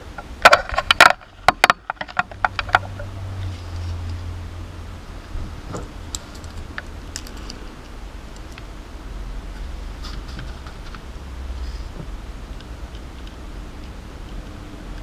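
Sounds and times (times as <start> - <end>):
low hum: 0.0 - 15.0
clicks and rustles of handling tools: 5.7 - 8.7.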